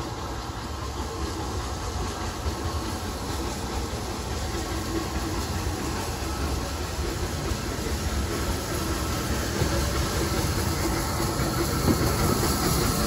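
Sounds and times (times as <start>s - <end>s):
train rumbling on rails: 0.0s - 13.0s.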